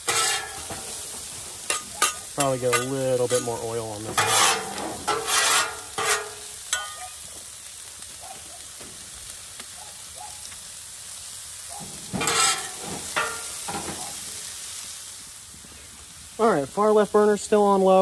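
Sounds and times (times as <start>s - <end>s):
metal spatulas scraping griddle: 0.0s - 7.1s, 11.9s - 14.1s
food sizzling in oil: 0.0s - 18.0s.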